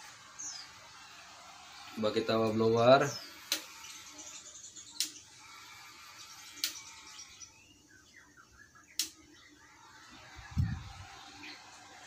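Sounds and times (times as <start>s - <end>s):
sharp light clicks: 5.0s - 5.2s, 6.6s - 6.8s, 8.9s - 9.2s.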